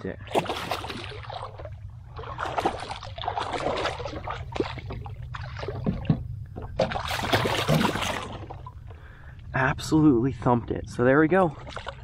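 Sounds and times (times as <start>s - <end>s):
low rumble: 0.0s - 11.2s
fish splashing at the surface: 0.3s - 6.0s, 6.8s - 8.6s.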